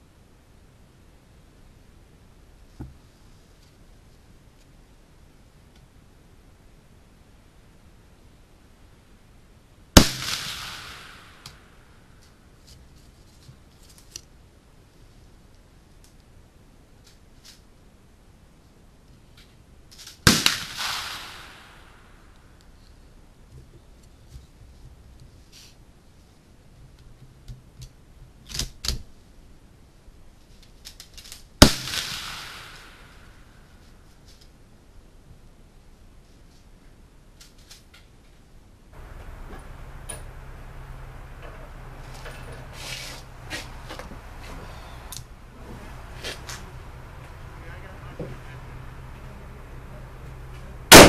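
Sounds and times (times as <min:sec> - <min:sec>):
rifle shot echoing: 0:10.0 - 0:11.9, 0:20.2 - 0:22.3, 0:31.6 - 0:33.4.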